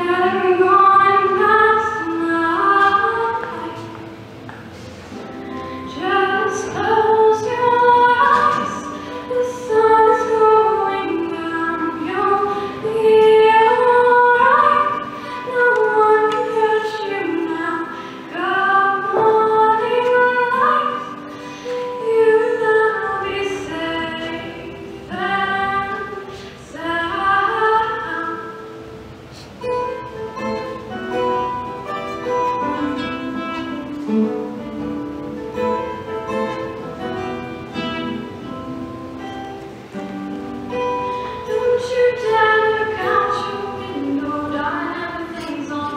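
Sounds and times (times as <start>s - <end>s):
woman singing: 0.0s - 4.0s, 5.7s - 28.8s, 40.8s - 45.9s
acoustic guitar strumming: 0.0s - 45.9s.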